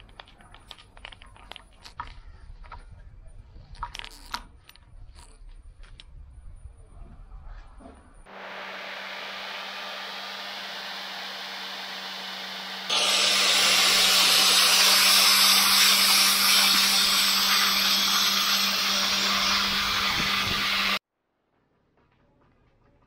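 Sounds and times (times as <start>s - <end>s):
angle grinder motor whine: 8.3s - 21.0s
grinding disc hissing on metal: 8.3s - 21.0s.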